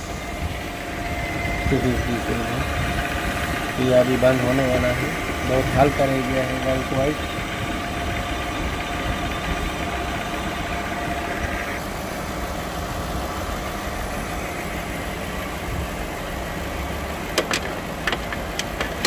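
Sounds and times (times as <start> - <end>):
car engine idling: 0.0 - 19.0
steady whine: 0.0 - 19.0
sharp clicks: 17.3 - 19.0.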